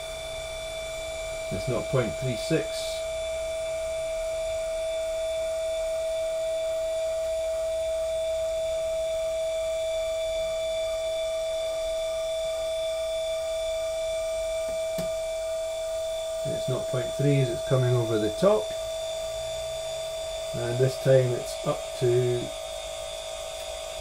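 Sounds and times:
drive motor whining: 14.8 - 24.0.

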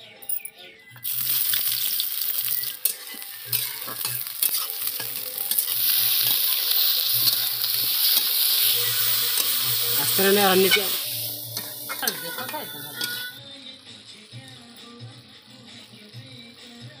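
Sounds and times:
onions sizzling in hot oil: 1.0 - 13.4.

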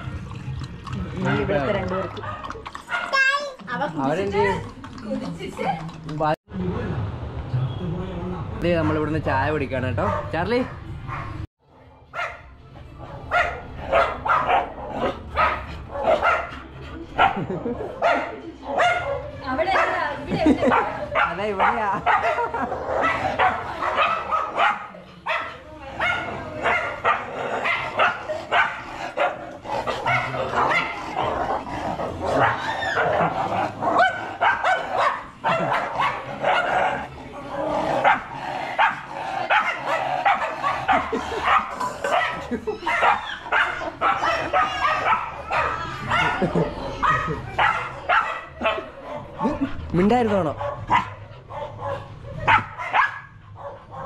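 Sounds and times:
dog barking: 2.2 - 3.2, 10.0 - 11.4, 12.1 - 12.5, 13.3 - 16.5, 17.2 - 20.0, 20.6 - 31.0, 32.3 - 33.2, 33.9 - 37.1, 38.0 - 49.6, 50.6 - 54.0.

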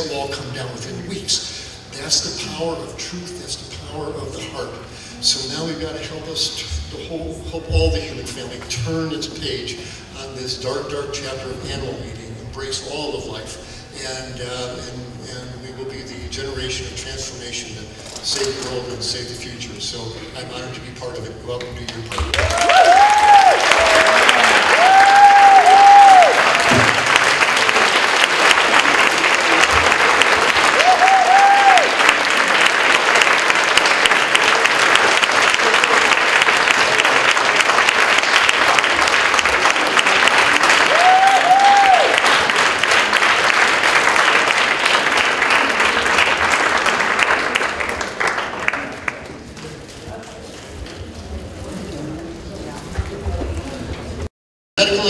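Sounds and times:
audience applauding: 22.1 - 49.7
whoops: 22.3 - 26.7, 30.7 - 32.0, 40.8 - 42.2.

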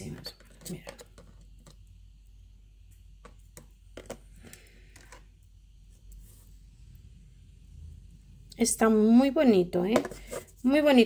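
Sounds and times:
low hum: 5.3 - 9.4.

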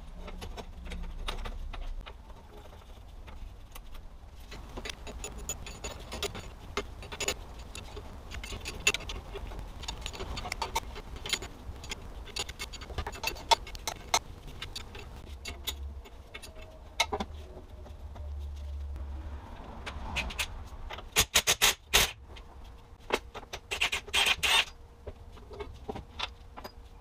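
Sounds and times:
metal clicks and clinks: 4.5 - 17.3.

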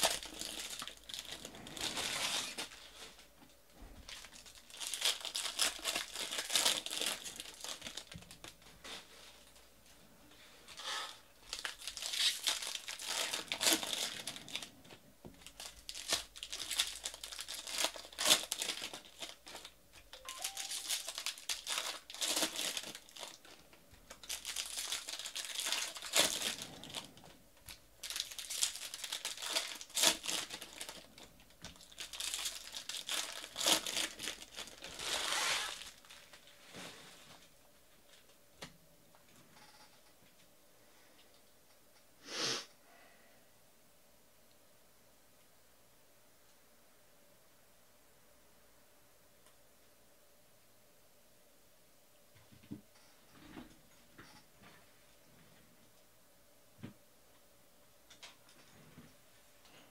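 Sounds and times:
foil wrappers crinkling and tearing: 0.0 - 3.2, 4.0 - 9.0, 10.8 - 14.7, 15.4 - 36.6.

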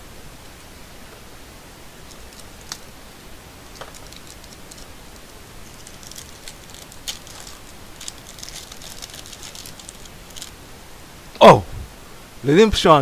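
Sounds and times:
steady hiss: 0.0 - 13.0
foil wrapper crinkling: 2.0 - 3.0, 3.6 - 10.6
stiff cards sliding: 2.0 - 3.0, 3.7 - 10.6.

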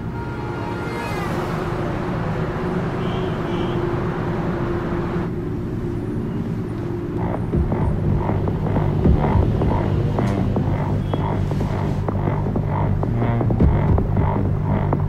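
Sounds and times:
brief high tones: 0.0 - 2.0
highway traffic whoosh: 0.0 - 12.2
low steady drone: 0.0 - 15.0.

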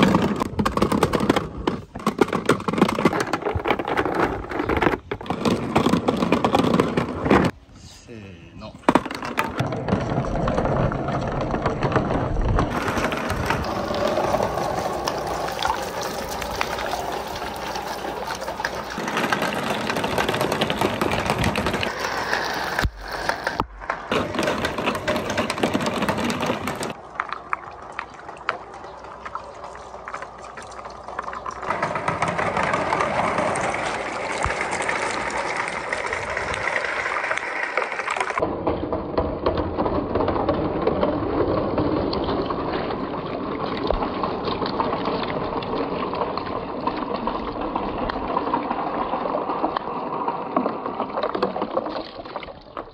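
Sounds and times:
marbles clattering down plastic chutes: 0.0 - 7.5, 8.8 - 27.5, 31.1 - 42.6
balls splashing into water: 8.8 - 38.4.

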